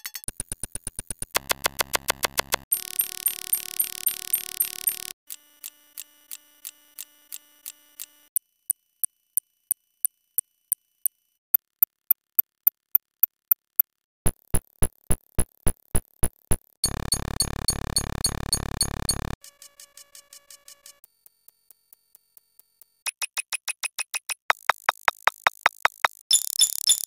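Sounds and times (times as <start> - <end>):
electronic clicks and blips: 1.4 - 5.2, 14.3 - 19.4.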